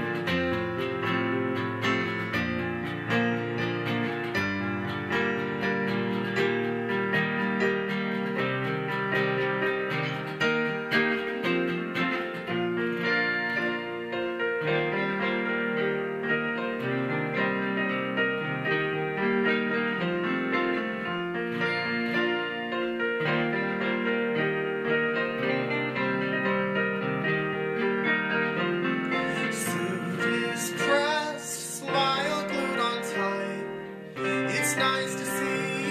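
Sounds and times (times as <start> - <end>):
acoustic guitar plucking: 0.0 - 14.0, 28.5 - 35.9
piano chords: 0.0 - 35.9.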